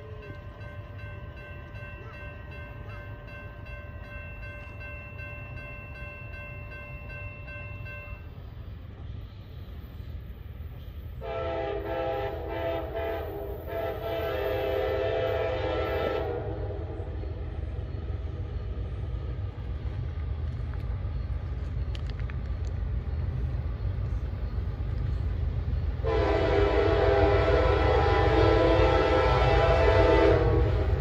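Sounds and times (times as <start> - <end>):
train rumble: 0.0 - 31.0
locomotive air horn blasts: 11.2 - 17.0, 26.0 - 31.0.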